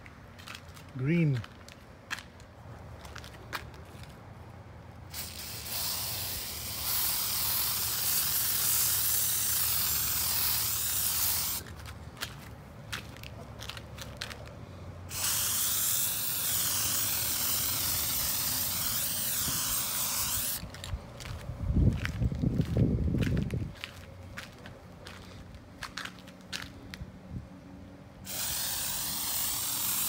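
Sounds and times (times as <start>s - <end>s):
spray paint can hissing: 5.1s - 11.7s, 15.1s - 20.6s, 28.2s - 30.0s.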